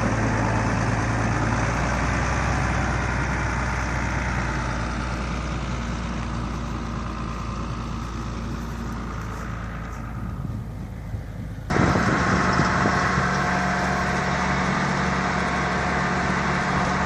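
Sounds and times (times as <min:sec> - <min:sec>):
large diesel engine running: 0:00.0 - 0:17.0.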